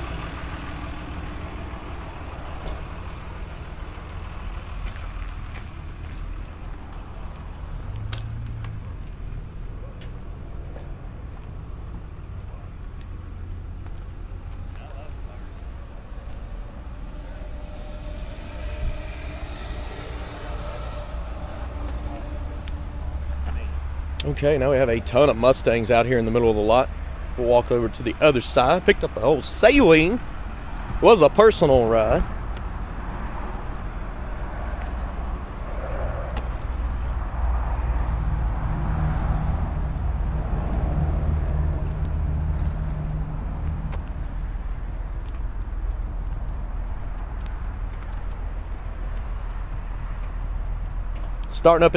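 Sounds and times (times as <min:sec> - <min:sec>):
distant engine drone: 0:00.0 - 0:51.9
traffic noise: 0:00.0 - 0:51.9
wind rumble on microphone: 0:13.6 - 0:24.6, 0:32.2 - 0:51.5.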